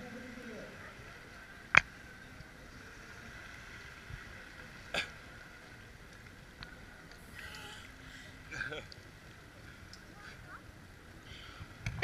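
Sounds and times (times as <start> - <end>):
small waves lapping: 0.0 - 12.0.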